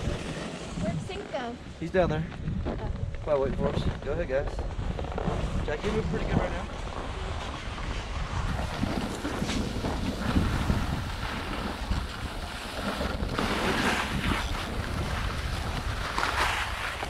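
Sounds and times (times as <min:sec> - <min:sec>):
ski edges scraping snow: 0:00.0 - 0:01.5, 0:04.9 - 0:17.0
wind rushing over microphone: 0:00.0 - 0:17.0.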